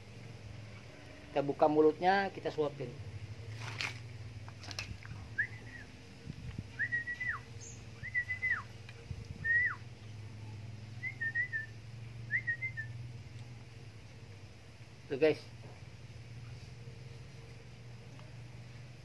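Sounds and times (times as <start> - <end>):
short whistled calls: 5.3 - 6.0, 6.8 - 8.8, 9.4 - 9.8, 11.0 - 13.0.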